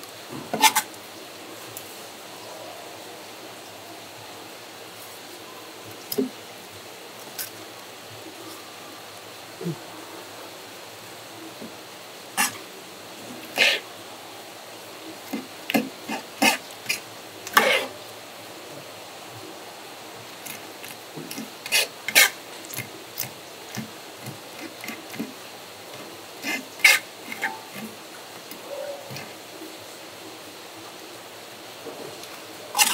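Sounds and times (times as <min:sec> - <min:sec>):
steady hiss: 0:00.0 - 0:32.9
knife scraping: 0:00.6 - 0:00.9, 0:12.4 - 0:12.6, 0:13.5 - 0:13.8, 0:15.3 - 0:18.0, 0:20.4 - 0:25.3, 0:25.9 - 0:29.3.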